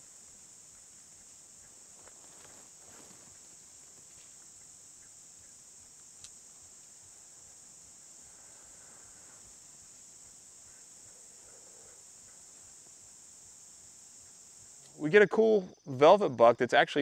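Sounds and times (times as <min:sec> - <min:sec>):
faint rustling: 0:00.0 - 0:13.0
insects chirping: 0:00.0 - 0:17.0.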